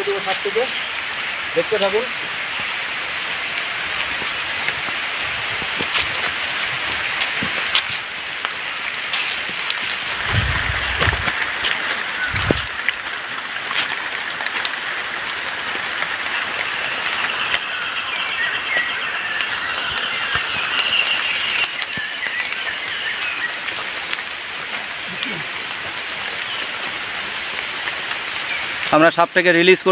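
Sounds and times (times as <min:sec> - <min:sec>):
light rain on leaves: 0:00.0 - 0:29.9
low thumps: 0:10.1 - 0:12.8.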